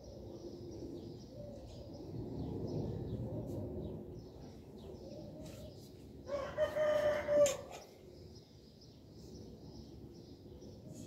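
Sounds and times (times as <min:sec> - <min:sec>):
small birds chirping: 0:00.0 - 0:06.2
rooster crowing: 0:06.3 - 0:07.7.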